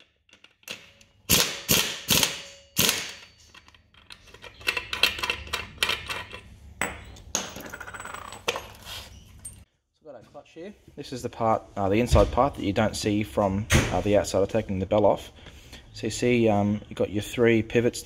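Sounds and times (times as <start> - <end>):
impact wrench bursts: 1.2 - 3.4.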